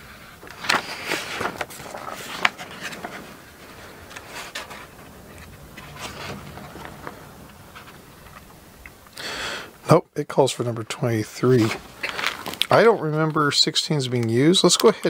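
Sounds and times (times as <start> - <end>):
rustling: 0.0 - 9.8, 11.4 - 13.5.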